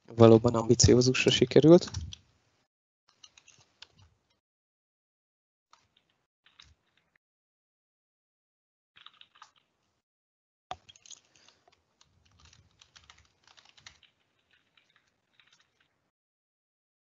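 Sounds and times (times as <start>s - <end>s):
faint keyboard typing: 0.2s - 2.3s, 3.1s - 4.4s, 5.7s - 7.2s, 9.0s - 9.9s, 10.7s - 16.1s.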